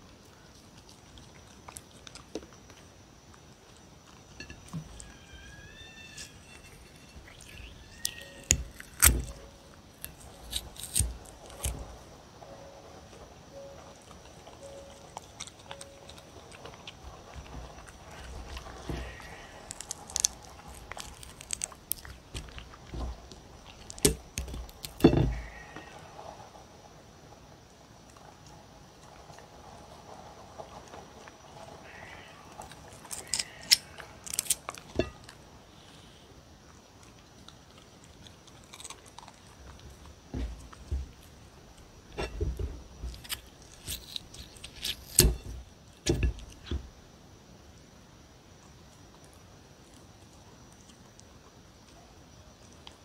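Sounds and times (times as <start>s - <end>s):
dog chewing crunchy food: 0.0s - 5.2s, 6.2s - 12.1s, 13.8s - 25.5s, 36.6s - 46.8s.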